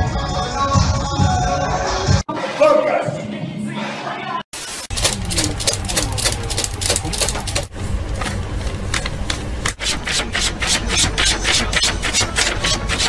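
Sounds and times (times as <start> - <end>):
newspaper rustling and flapping: 4.6 - 9.5.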